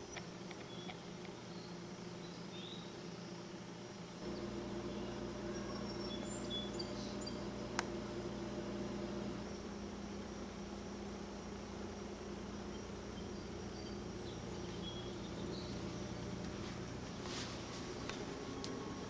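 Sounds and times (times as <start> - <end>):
low hum and hiss: 0.0 - 19.0
faint high chirps: 4.2 - 9.6.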